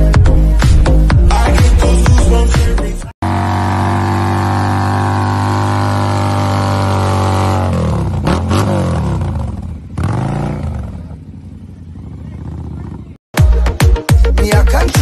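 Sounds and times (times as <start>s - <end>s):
motorcycle engine revving: 3.2s - 13.3s.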